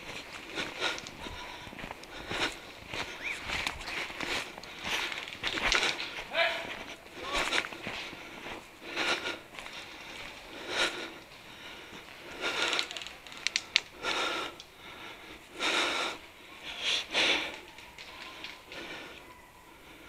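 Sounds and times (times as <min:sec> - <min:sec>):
person breathing heavily: 0:00.0 - 0:20.0
sharp clicks: 0:12.7 - 0:14.7.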